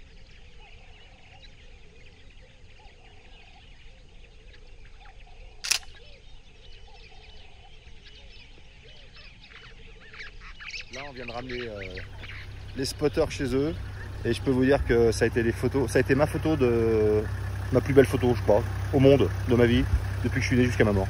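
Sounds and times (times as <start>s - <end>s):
birds chirping: 0.0s - 21.0s
camera shutter click: 5.6s - 6.0s.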